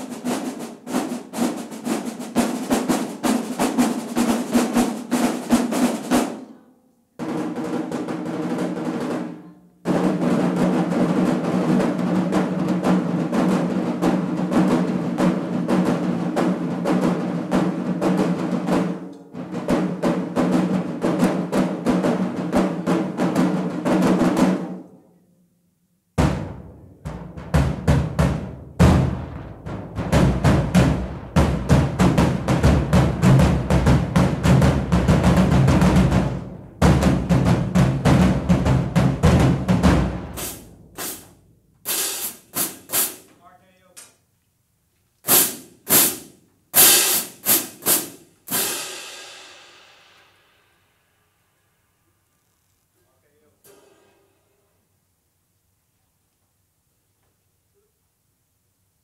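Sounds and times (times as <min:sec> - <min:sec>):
marching drumline playing: 0:00.0 - 0:06.5, 0:07.2 - 0:24.8, 0:26.2 - 0:43.3, 0:45.3 - 0:50.1
hand cymbals crashing: 0:40.4 - 0:41.3, 0:41.9 - 0:43.3, 0:45.3 - 0:51.5, 0:53.7 - 0:54.5.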